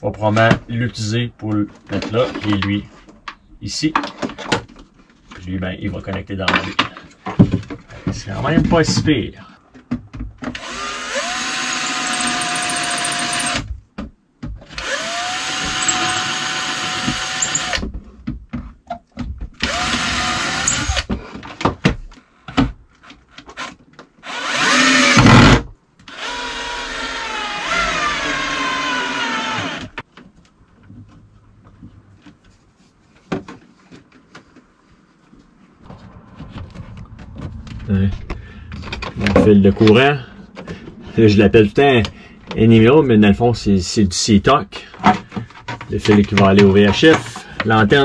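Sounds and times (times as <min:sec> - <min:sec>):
cordless drill whine: 0:10.6 - 0:13.6, 0:14.8 - 0:17.8, 0:19.6 - 0:21.1, 0:24.2 - 0:25.4, 0:26.1 - 0:30.0.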